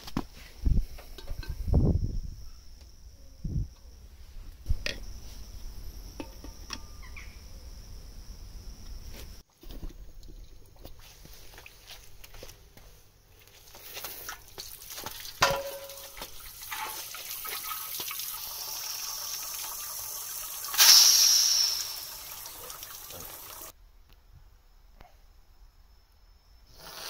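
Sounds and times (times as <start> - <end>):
water spilling onto paving: 13.9 - 23.7
water running into metal tank: 14.6 - 23.7.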